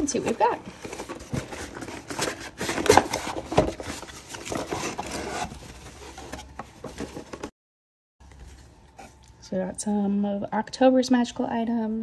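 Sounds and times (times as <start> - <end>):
cardboard box being opened: 0.3 - 7.5
cardboard rubbing: 0.8 - 7.5.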